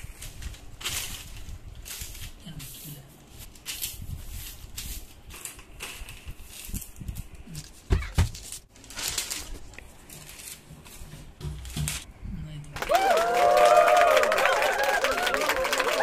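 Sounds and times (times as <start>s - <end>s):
paper rustling and crinkling: 0.0s - 12.1s.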